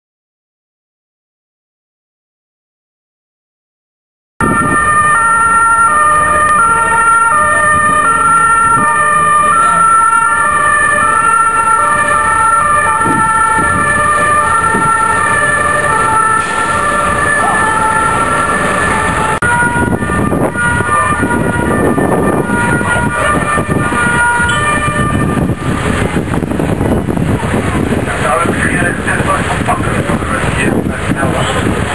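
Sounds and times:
two-tone siren: 4.4s - 27.2s
vehicle engine and tyres rushing: 4.4s - 31.9s.

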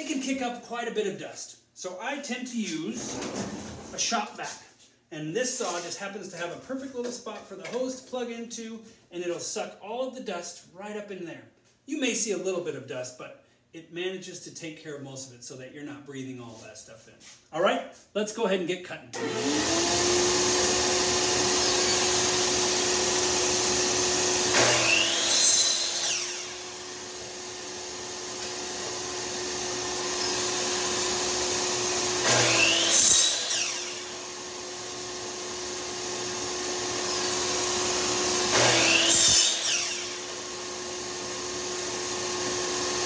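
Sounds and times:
miter saw cutting wood: 19.2s - 43.0s
shop vacuum running: 19.2s - 43.0s.

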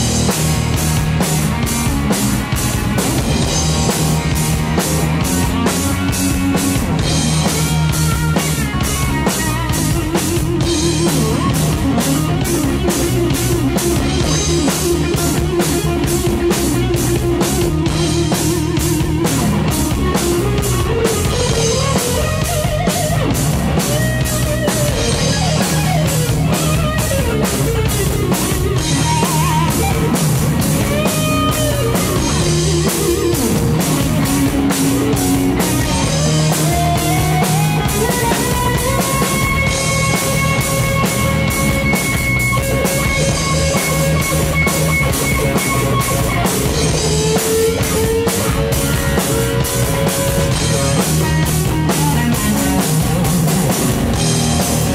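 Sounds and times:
bass guitar: 0.0s - 54.9s
drum kit beat on cymbals: 0.0s - 54.9s
electric guitar lead lines: 0.0s - 54.9s.

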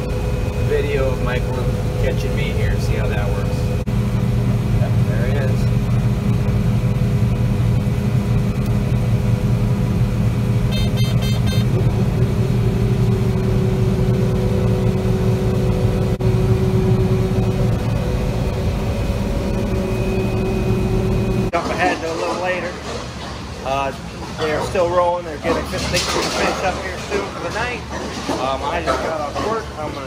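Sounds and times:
combine harvester droning: 0.0s - 30.0s
high beeps: 10.7s - 11.7s.

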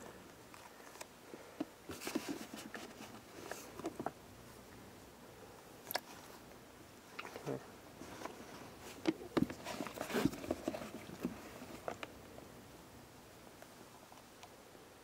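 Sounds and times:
rustling and crinkling paper: 1.9s - 4.1s, 8.0s - 12.0s.

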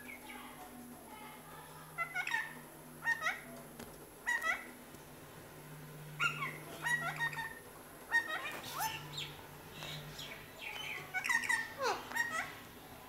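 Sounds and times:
parakeet chirping: 2.0s - 3.5s, 4.2s - 4.7s, 6.2s - 12.7s.

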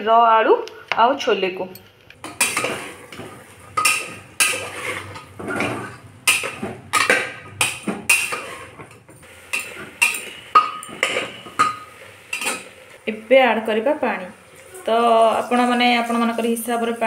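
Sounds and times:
steel spoon scraping metal pot: 2.2s - 12.9s, 14.4s - 17.0s.

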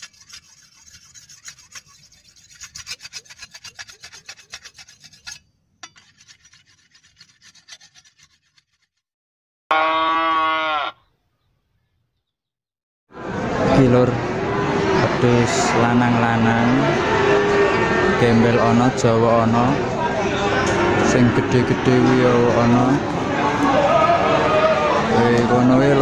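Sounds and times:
rasping scraping strokes: 0.0s - 9.0s
goat bleating: 9.7s - 11.1s.

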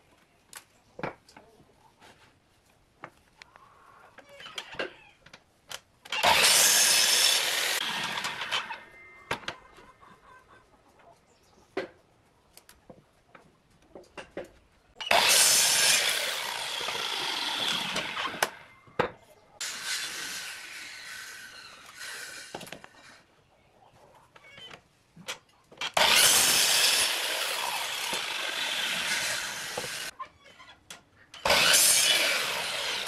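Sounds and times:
miter saw cutting wood: 6.1s - 8.9s, 15.0s - 18.7s, 19.6s - 22.7s, 25.8s - 30.1s, 31.4s - 33.0s.

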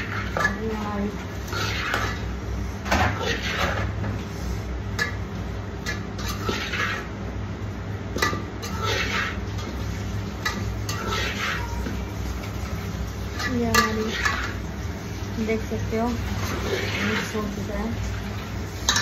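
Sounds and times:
spoon scraping steel bowl: 3.0s - 3.9s, 5.9s - 7.1s, 8.6s - 9.4s, 10.5s - 11.9s.

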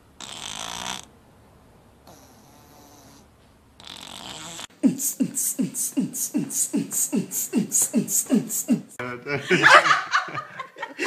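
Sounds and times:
beatbox rhythm: 3.8s - 9.0s.

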